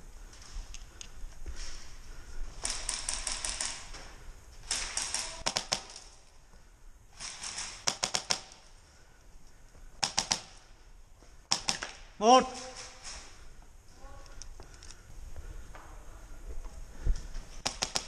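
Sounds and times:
airsoft rifles firing bursts: 2.6s - 3.9s, 4.6s - 6.1s, 7.2s - 8.6s, 10.0s - 10.6s, 11.5s - 12.0s, 17.6s - 18.0s.

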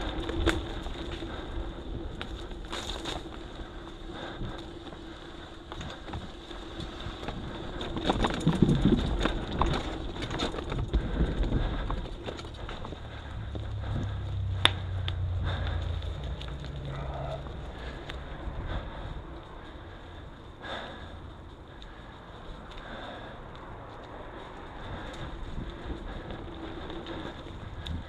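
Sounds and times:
bike rattling and knocking: 5.7s - 20.0s.

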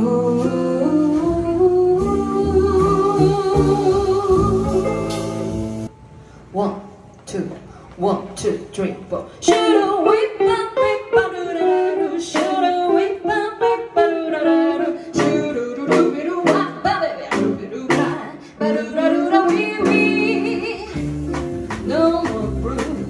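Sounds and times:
person singing: 0.0s - 5.2s, 8.4s - 21.0s, 21.8s - 23.0s
archtop guitar: 0.0s - 5.9s, 9.5s - 23.0s
drum kit and cymbals: 0.0s - 5.9s, 15.2s - 18.3s, 19.4s - 23.0s
upright double bass: 0.0s - 5.9s, 18.9s - 23.0s.

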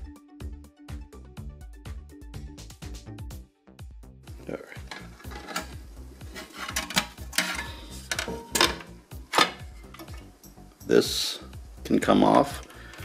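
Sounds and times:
plastic housing snapping: 6.6s - 10.2s.

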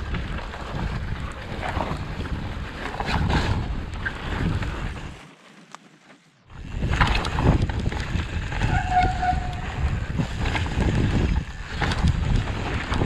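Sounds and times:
wind on microphone: 0.0s - 5.2s, 6.5s - 13.0s
tyres rumbling over snow: 0.0s - 13.0s
brief high squeal: 8.6s - 9.8s.

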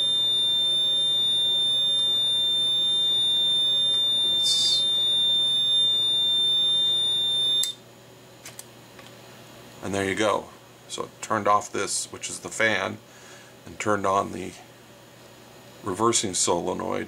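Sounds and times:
continuous high-pitched beep: 0.0s - 7.8s.

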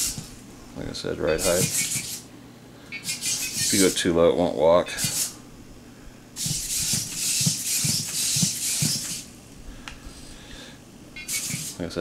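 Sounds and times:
robot servos whirring: 0.0s - 0.3s, 1.4s - 2.2s, 2.9s - 4.0s, 5.0s - 5.4s, 6.4s - 9.3s, 11.2s - 11.8s
robot feet tapping on wood: 6.4s - 9.2s.

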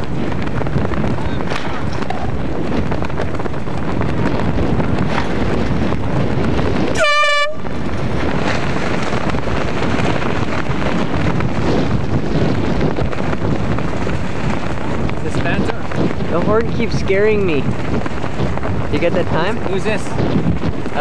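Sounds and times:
wind noise on microphone: 0.0s - 21.0s
horn blast: 6.9s - 7.6s.

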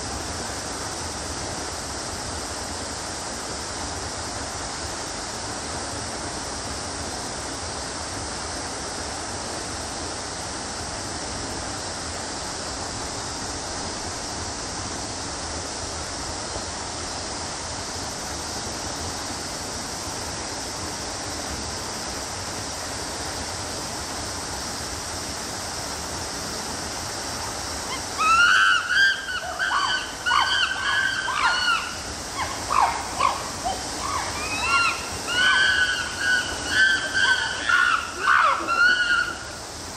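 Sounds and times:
steady rushing hiss: 0.0s - 39.9s
chimpanzees screaming: 27.9s - 39.6s.

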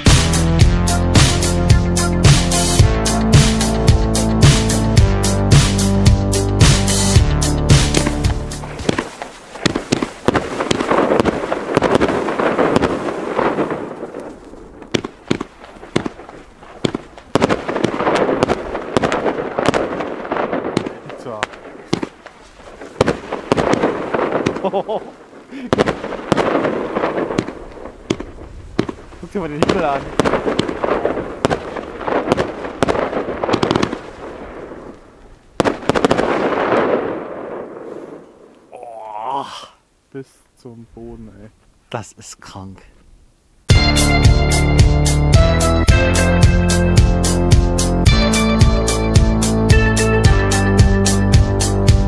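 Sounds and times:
fireworks crackle: 6.6s - 38.8s
fireworks launch shots and breaks: 7.7s - 38.5s.

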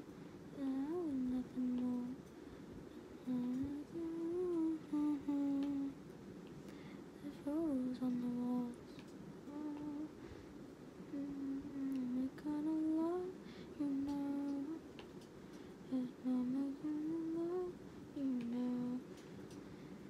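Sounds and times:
woman humming: 0.6s - 2.2s, 3.2s - 6.0s, 7.2s - 10.2s, 11.1s - 14.8s, 15.9s - 19.1s.

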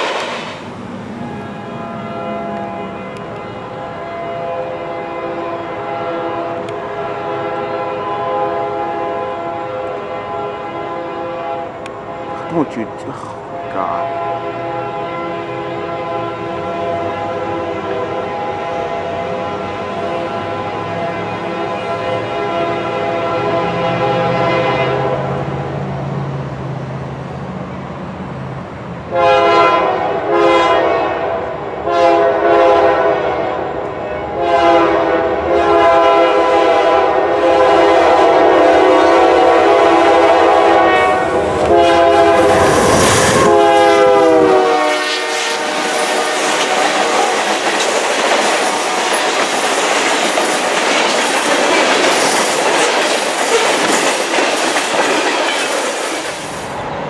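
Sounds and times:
locomotive air horn blasts: 1.2s - 25.5s, 29.1s - 47.4s
train wheels clattering on rails: 45.6s - 56.7s.

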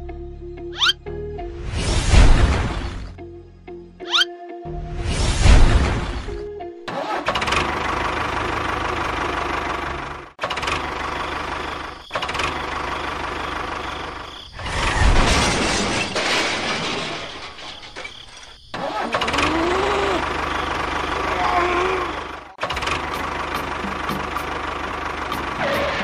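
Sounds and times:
tractor engine chugging: 7.0s - 14.3s, 19.6s - 26.0s.

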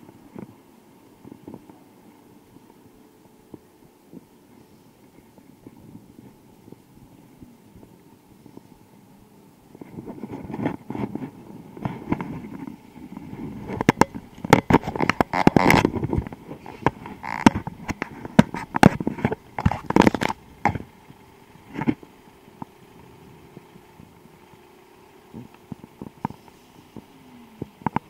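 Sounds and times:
bicycle rattling: 0.0s - 28.0s.

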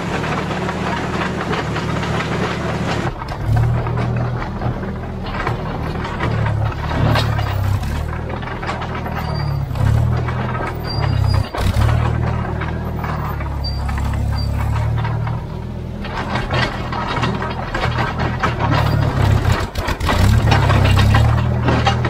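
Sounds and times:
dozer engine running: 0.0s - 22.0s
steel tracks clattering: 0.0s - 22.0s.

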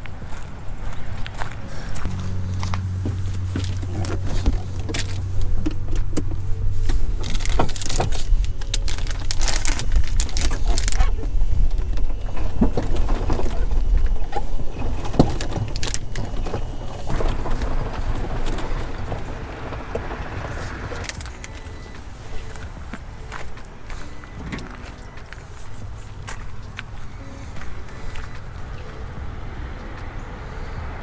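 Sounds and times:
steady low hum: 0.0s - 31.0s
plastic rustling: 2.1s - 23.6s.

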